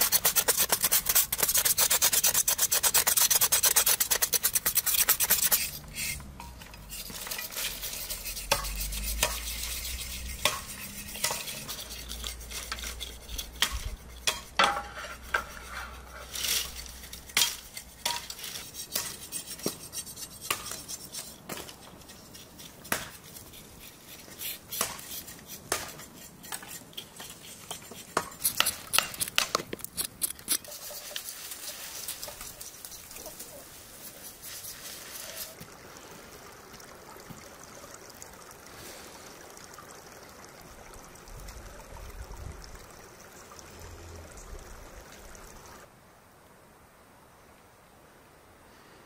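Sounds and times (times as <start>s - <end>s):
steady hiss: 0.0s - 36.5s
outdoor ambience: 0.0s - 49.0s.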